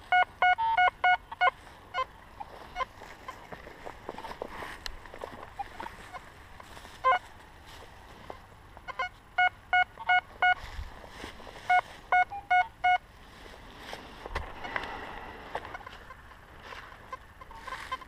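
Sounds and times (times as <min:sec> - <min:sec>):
metal detector beeps: 0:00.0 - 0:03.5, 0:06.9 - 0:07.3, 0:08.8 - 0:10.7, 0:11.6 - 0:13.0, 0:17.0 - 0:18.0.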